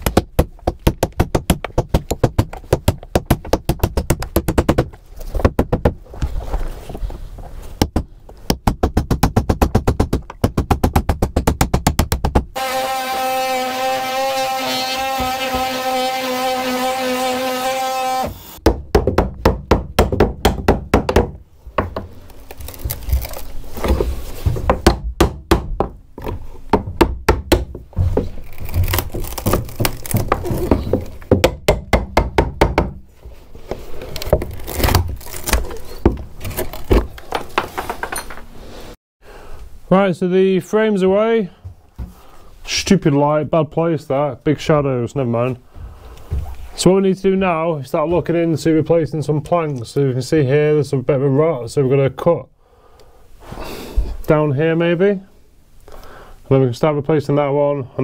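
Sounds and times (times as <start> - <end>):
hammer striking chisel into wood: 18.6 - 22.0, 24.7 - 25.9, 31.3 - 33.0.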